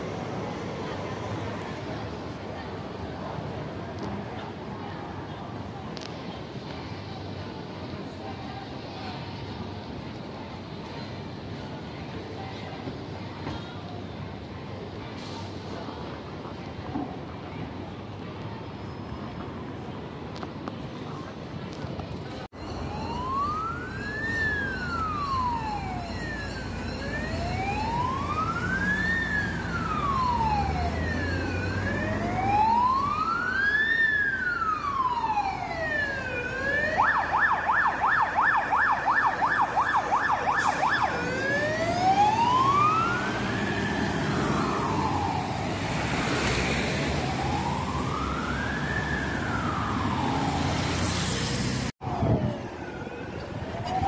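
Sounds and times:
truck and traffic rumble: 0:00.0 - 0:54.0
fire engine siren: 0:22.7 - 0:54.0.

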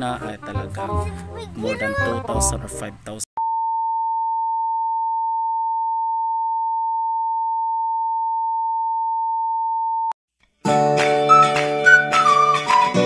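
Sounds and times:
music: 0:00.0 - 0:03.0, 0:10.4 - 0:13.0.

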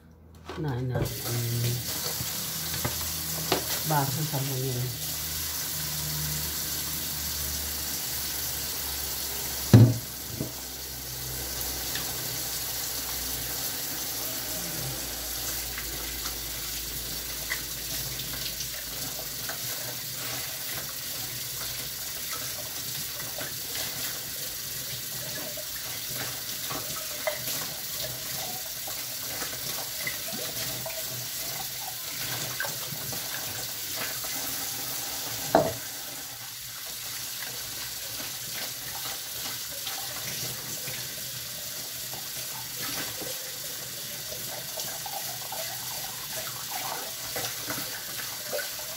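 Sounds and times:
tap running into metal sink: 0:01.9 - 0:03.9, 0:09.7 - 0:10.7, 0:34.0 - 0:36.0
loud knock: 0:09.7 - 0:10.1.

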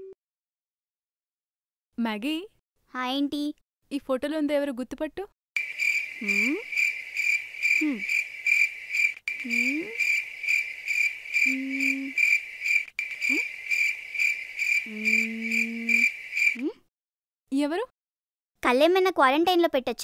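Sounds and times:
cricket chirping: 0:05.6 - 0:16.7.

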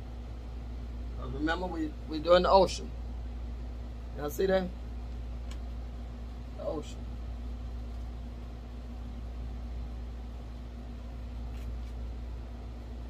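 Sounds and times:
faint constant tone: 0:00.0 - 0:13.0
low room hum: 0:00.0 - 0:13.0.

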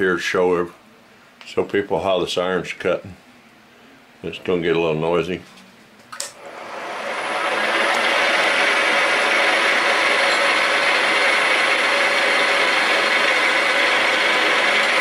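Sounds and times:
milling machine whirring: 0:06.4 - 0:15.0.

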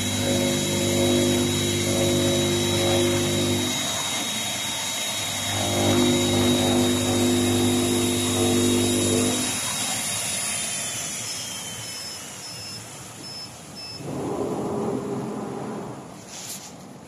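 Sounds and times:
low machine drone: 0:00.0 - 0:04.0, 0:14.0 - 0:16.3
cutting machine high whine: 0:00.0 - 0:16.2.

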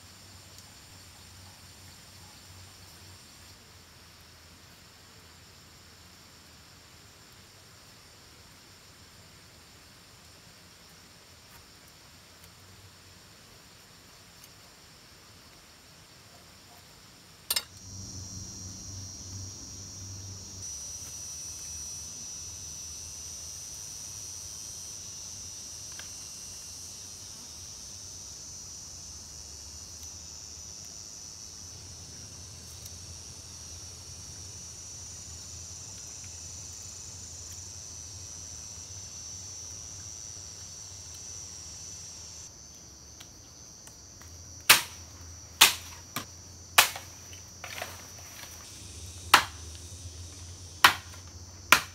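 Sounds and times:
forest insects droning: 0:00.0 - 0:51.9
sharp strikes: 0:44.7 - 0:45.0, 0:45.6 - 0:46.0, 0:46.8 - 0:47.1, 0:49.3 - 0:49.6, 0:50.8 - 0:51.9.

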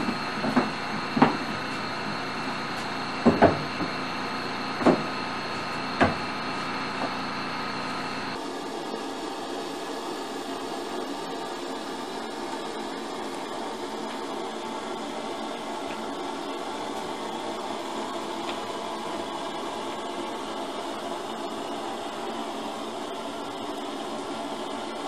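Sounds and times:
wooden boards knocking: 0:03.2 - 0:03.8, 0:04.8 - 0:05.1, 0:06.0 - 0:06.2.

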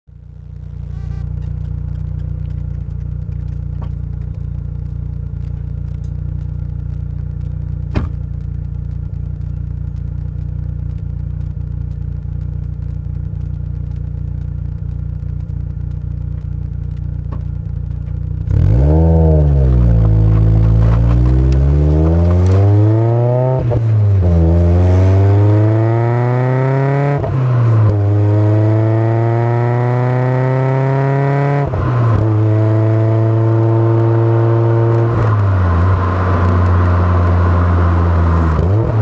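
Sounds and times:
car engine idling: 0:00.1 - 0:29.0
car engine revving: 0:00.2 - 0:39.0.

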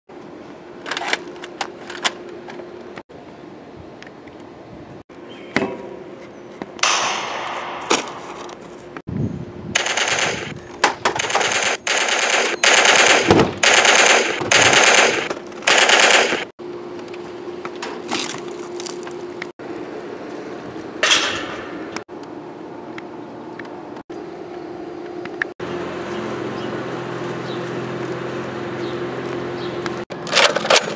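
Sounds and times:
single sharp shots: 0:06.8 - 0:08.5, 0:09.8 - 0:10.5, 0:11.2 - 0:16.5
automatic gunfire bursts: 0:09.8 - 0:10.5, 0:11.2 - 0:16.5.

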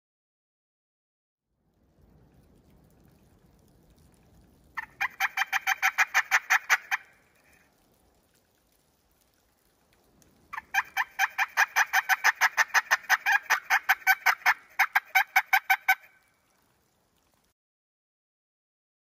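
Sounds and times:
turkey gobbling: 0:04.8 - 0:07.6, 0:10.5 - 0:16.3.

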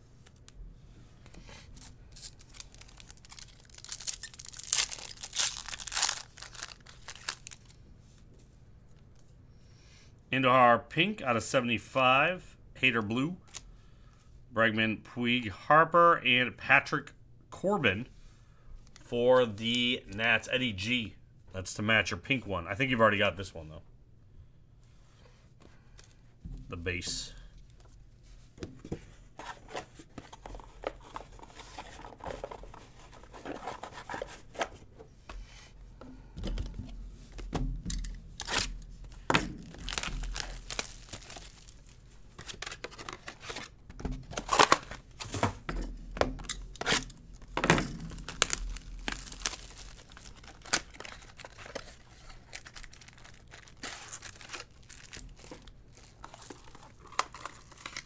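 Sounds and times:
plastic wrap crinkling: 0:01.8 - 0:07.8, 0:38.0 - 0:45.3, 0:46.4 - 0:58.0
cardboard tearing: 0:02.2 - 0:07.6, 0:39.7 - 0:41.7, 0:48.1 - 0:58.0.

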